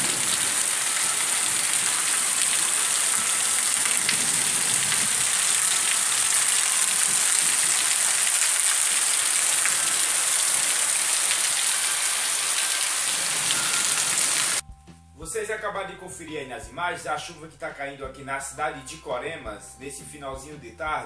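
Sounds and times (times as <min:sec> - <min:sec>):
steady rain falling: 0:00.0 - 0:14.6.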